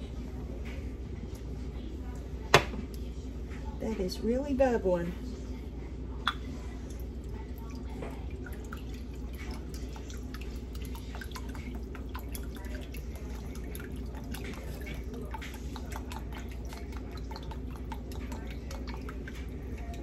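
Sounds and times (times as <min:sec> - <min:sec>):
pot boiling hard: 0:06.5 - 0:20.0.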